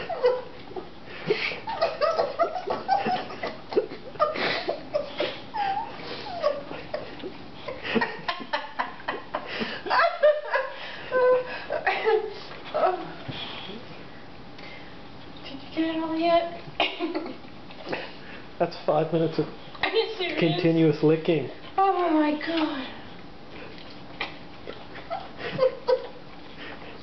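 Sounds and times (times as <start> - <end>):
woman giggling: 0.0 - 13.0, 16.8 - 18.0, 25.0 - 26.2.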